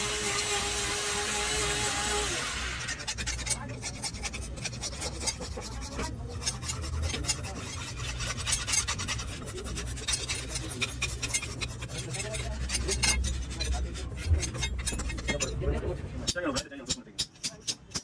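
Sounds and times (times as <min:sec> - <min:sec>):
file rasping on knife blade: 0:00.0 - 0:15.8.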